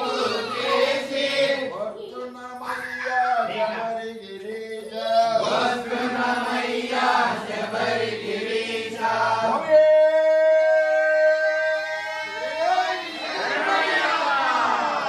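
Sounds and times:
group chanting in unison: 0.0 - 1.7, 5.0 - 9.7, 11.0 - 15.0.

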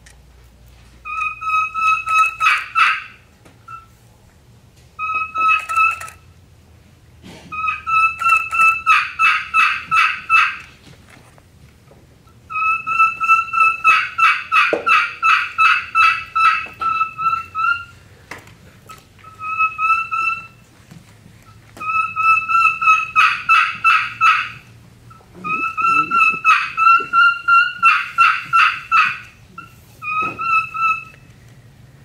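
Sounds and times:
turkey call whistles and yelps: 1.1 - 3.9, 5.0 - 6.2, 7.5 - 10.6, 12.5 - 18.0, 19.2 - 20.6, 21.8 - 31.3.

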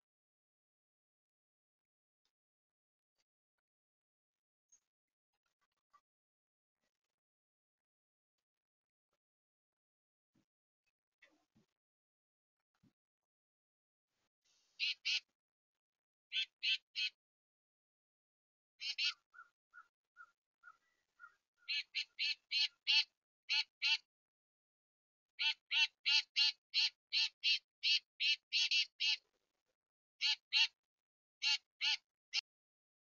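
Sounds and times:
bird giving harsh calls: 14.8 - 15.2, 16.3 - 17.2, 18.8 - 24.0, 25.4 - 29.2, 31.4 - 32.0.

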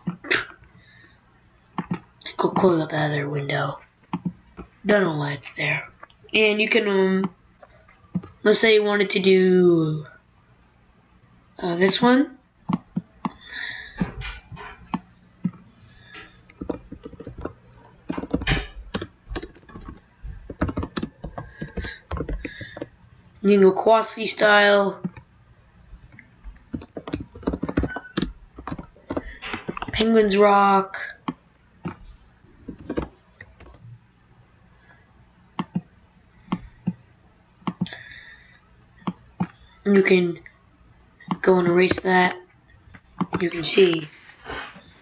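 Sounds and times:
typing on computer keyboard: 16.5 - 22.9, 26.7 - 30.1, 32.7 - 33.8
keyboard key taps: 18.1 - 22.9.

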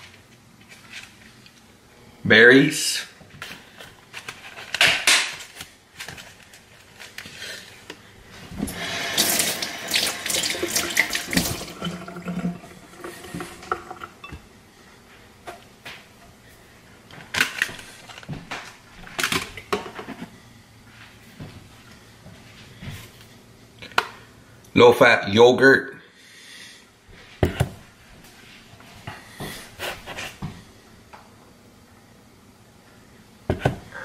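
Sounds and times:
water running from tap: 8.6 - 14.4.

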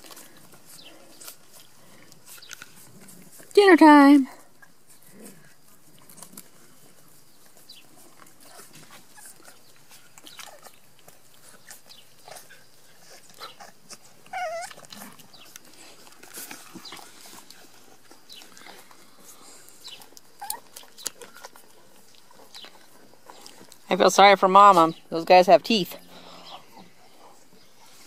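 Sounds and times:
puppies sucking smacks: 0.0 - 3.5, 4.4 - 24.0
puppy whimper: 13.1 - 15.6, 20.3 - 21.2
puppy squeaks: 14.3 - 14.9.

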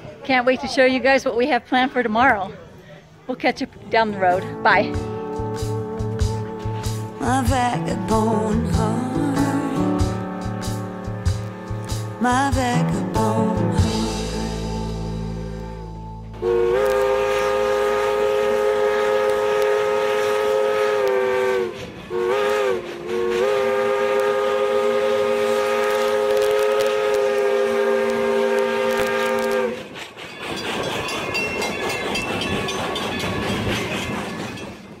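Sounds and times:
steam train running: 4.0 - 35.0
steam whistle blasts: 13.7 - 30.0.

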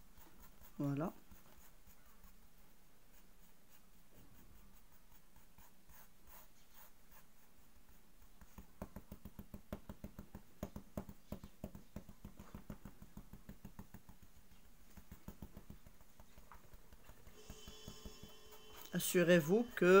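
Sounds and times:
fingertips scratching on glass: 15.1 - 20.0.

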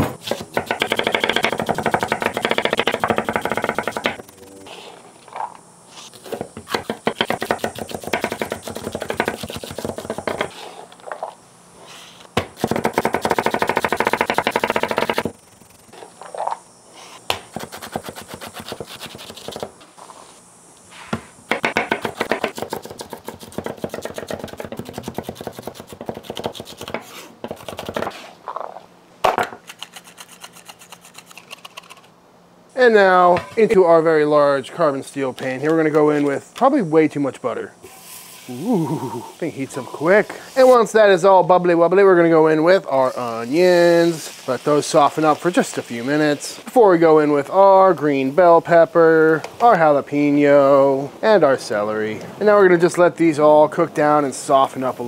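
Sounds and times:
knife chopping on wooden board: 6.3 - 10.6, 21.1 - 28.2.

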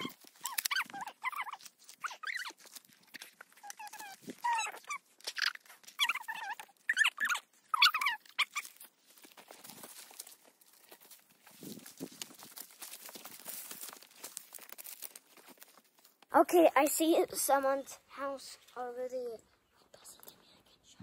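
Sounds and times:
footsteps crunching through leaves: 8.4 - 16.1.

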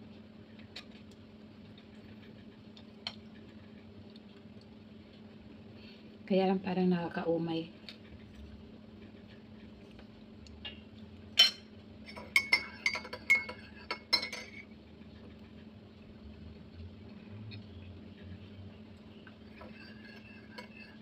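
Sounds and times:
spoon clinking against a mug: 11.4 - 14.6.

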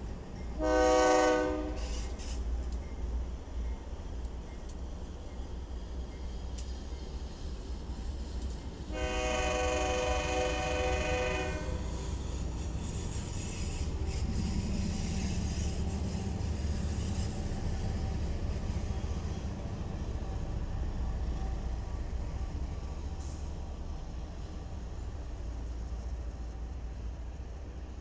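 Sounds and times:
passing train rumble: 0.0 - 28.0
locomotive air horn: 0.6 - 2.0, 8.9 - 11.9.

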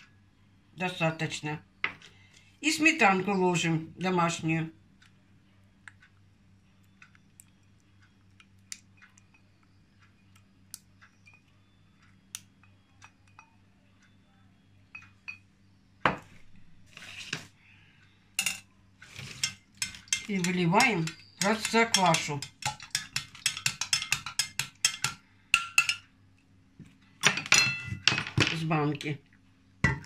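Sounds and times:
low steady hum: 0.0 - 30.0
spatula clinking against glass bowl: 18.4 - 26.0
spatula knocking on bowl: 19.8 - 26.0.

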